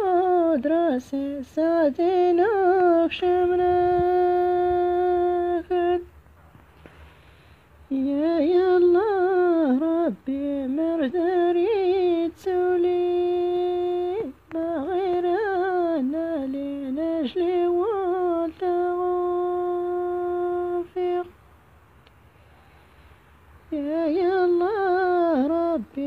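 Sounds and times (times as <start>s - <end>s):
person singing unaccompanied: 0.0s - 6.2s, 7.9s - 21.5s, 23.6s - 26.0s
singer breathing: 6.8s - 7.9s, 22.2s - 23.6s.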